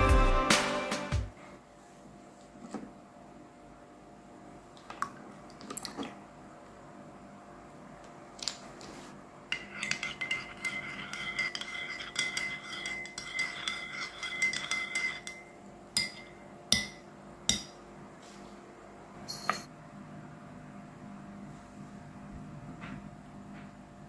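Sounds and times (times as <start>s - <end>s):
teaspoon stirring in a ceramic mug: 9.5s - 17.7s
spoon clinks on mug: 9.6s - 17.7s, 19.3s - 19.7s.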